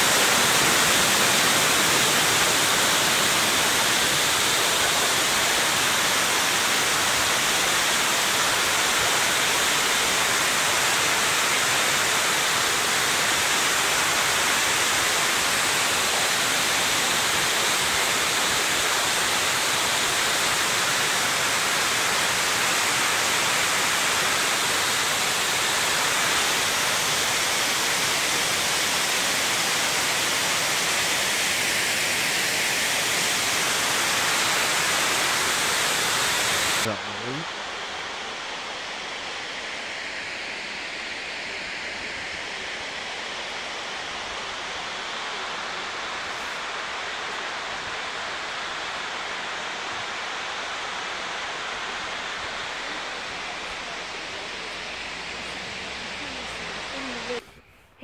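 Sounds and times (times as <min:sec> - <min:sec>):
water cascading over a dam: 0:00.0 - 0:57.4.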